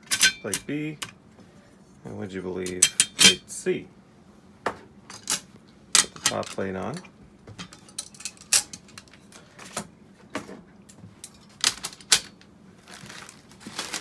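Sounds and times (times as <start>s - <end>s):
metal plates clicking and knocking: 2.7s - 3.4s, 7.5s - 9.3s.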